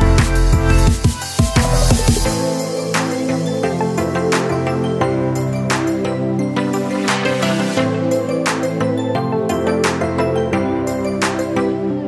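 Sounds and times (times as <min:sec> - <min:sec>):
drum beat: 0:00.0 - 0:02.5
heavy bass: 0:00.0 - 0:02.6.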